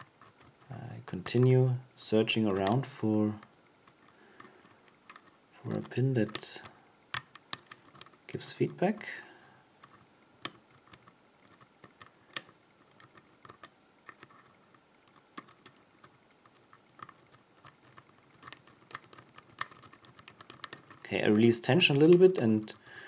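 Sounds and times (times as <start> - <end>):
lock pick clicking: 3.8 - 6.5, 9.8 - 14.5, 15.1 - 15.9, 16.5 - 21.0.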